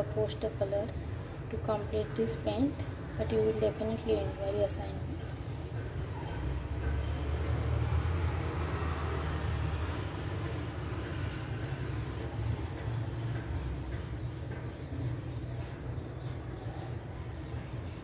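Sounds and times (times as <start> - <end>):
pencil scratching on paper: 7.2 - 18.0.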